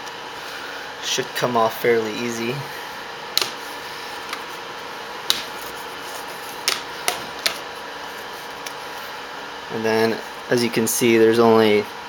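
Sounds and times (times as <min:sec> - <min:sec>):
sharp plastic clicks: 0:03.4 - 0:03.6.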